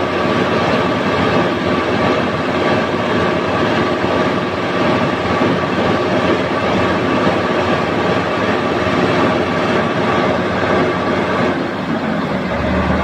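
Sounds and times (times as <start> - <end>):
crane engine running with whine: 0.0 - 13.0
deep hum: 12.0 - 13.0.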